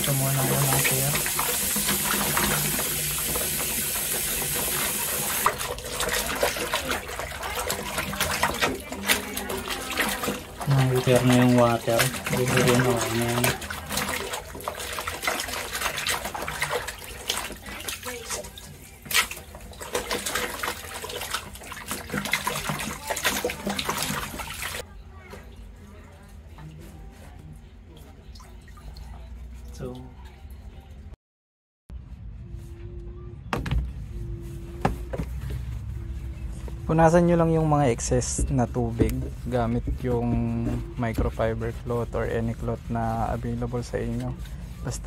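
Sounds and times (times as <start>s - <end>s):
tap water running: 0.0s - 24.8s, 36.6s - 45.0s
water dripping and splashing: 0.0s - 24.9s.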